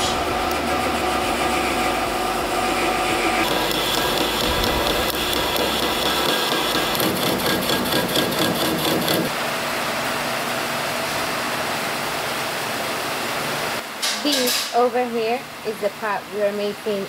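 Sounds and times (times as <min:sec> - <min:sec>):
metal lathe running: 0:00.0 - 0:09.3.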